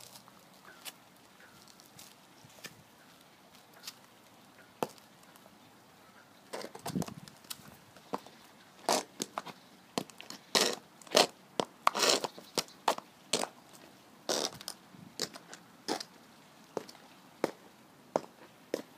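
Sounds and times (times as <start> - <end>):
boot heels on concrete: 16.8 - 17.6, 18.2 - 18.9.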